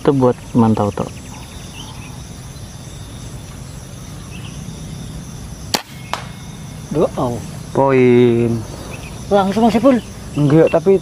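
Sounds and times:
insects chirring: 0:00.0 - 0:11.0
air rifle shot: 0:05.7 - 0:06.5.

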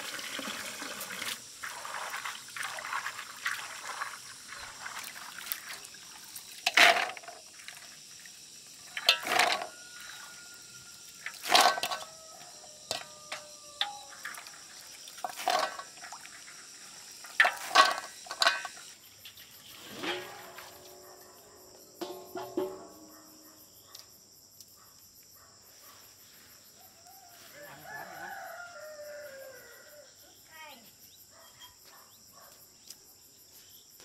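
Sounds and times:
insects whining: 0:00.0 - 0:34.0
peanuts rattling in metal basin: 0:01.7 - 0:19.0
distant rooster crowing: 0:09.4 - 0:14.6, 0:26.8 - 0:30.2.

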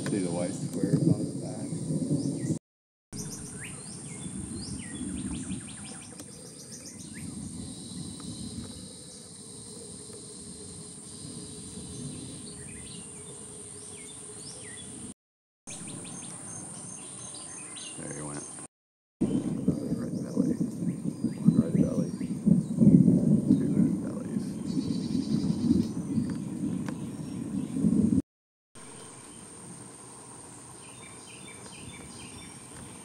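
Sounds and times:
birds chirping: 0:00.0 - 0:02.6, 0:03.2 - 0:15.1, 0:15.7 - 0:28.2, 0:28.8 - 0:33.0
high insect drone: 0:03.2 - 0:15.1, 0:28.8 - 0:33.0.

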